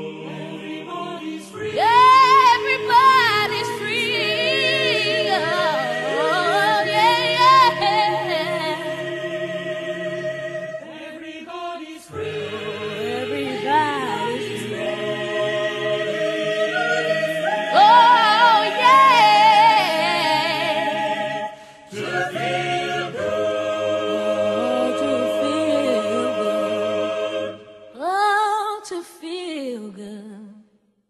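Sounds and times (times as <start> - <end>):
choir singing sustained chords: 0.0 - 28.0
high voice singing with vibrato: 24.4 - 26.8.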